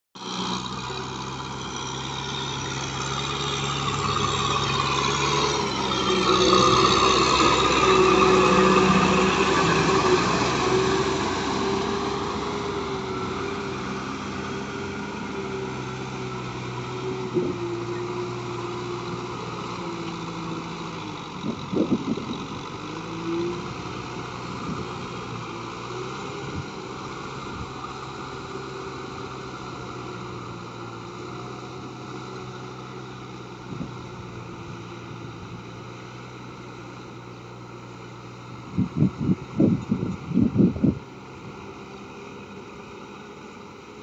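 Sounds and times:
tiller churning water: 0.2 - 33.8
tractor diesel engine running: 0.2 - 44.0.

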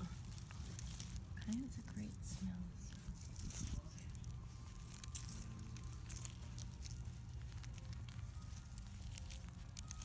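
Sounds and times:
puppies shuffling on blanket: 0.0 - 10.0.

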